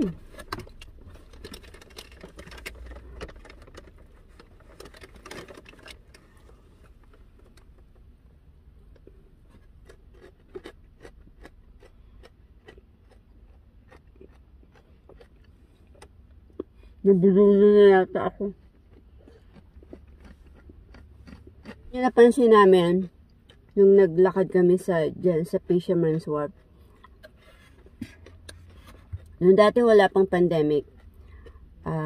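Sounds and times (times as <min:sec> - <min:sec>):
chewing clicks: 0:09.8 - 0:16.7, 0:18.6 - 0:21.9.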